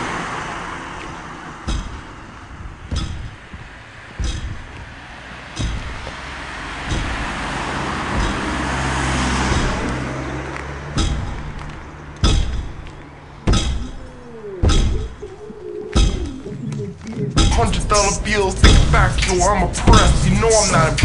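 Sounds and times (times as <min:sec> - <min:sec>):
steady low hum: 0:01.0 - 0:05.0, 0:05.6 - 0:08.8, 0:11.0 - 0:21.0
heavy drum hits: 0:06.9 - 0:08.7, 0:17.3 - 0:20.9.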